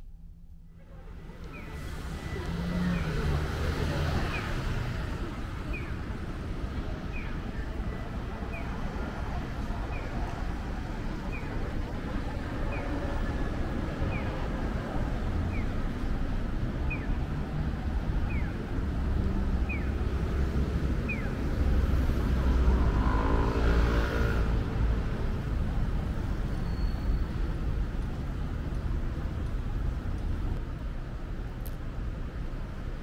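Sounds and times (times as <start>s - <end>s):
traffic rumble: 0.0s - 33.0s
vehicle engine passing: 21.8s - 25.0s.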